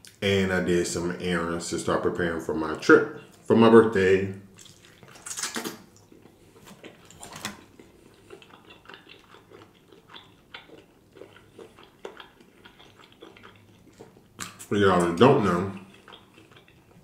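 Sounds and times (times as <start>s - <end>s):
person chewing meat: 4.5s - 17.0s.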